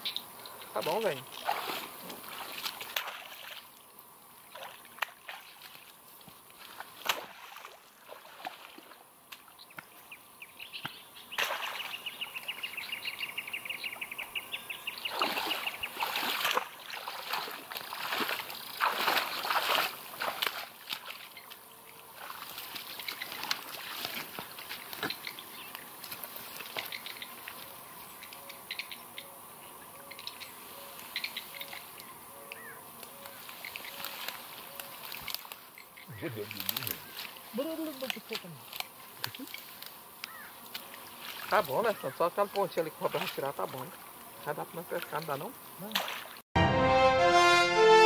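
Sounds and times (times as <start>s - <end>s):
water splashing and sloshing: 0.4s - 9.7s, 11.3s - 12.1s, 15.0s - 28.9s, 33.2s - 46.4s.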